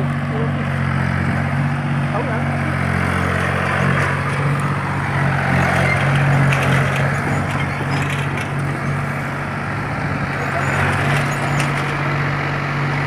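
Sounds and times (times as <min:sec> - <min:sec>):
tractor engine running: 0:00.0 - 0:13.0
binder clattering: 0:05.4 - 0:09.2, 0:10.4 - 0:12.0.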